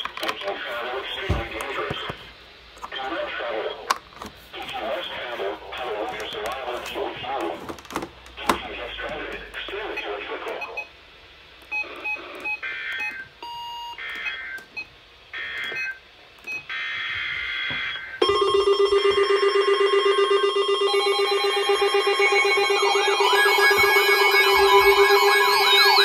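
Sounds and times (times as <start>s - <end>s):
radio alert tone: 17.7s - 26.0s
data header tone bursts: 19.6s - 26.0s.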